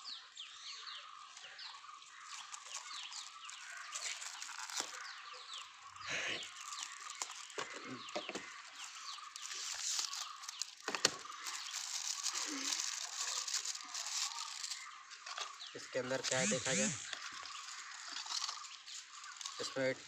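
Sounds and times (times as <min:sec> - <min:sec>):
birds calling: 0:00.0 - 0:20.0
cardboard box and wrapper rustling: 0:02.0 - 0:15.7.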